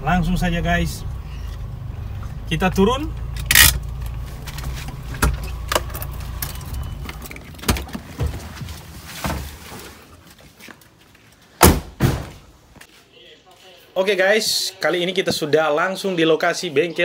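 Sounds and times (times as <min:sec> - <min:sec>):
car engine idling: 0:00.0 - 0:07.6.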